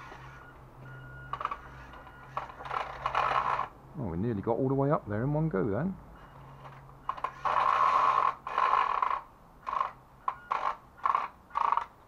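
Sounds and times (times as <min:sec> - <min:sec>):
toy truck motor whirring: 0:00.0 - 0:00.6, 0:01.3 - 0:03.7, 0:06.2 - 0:12.0.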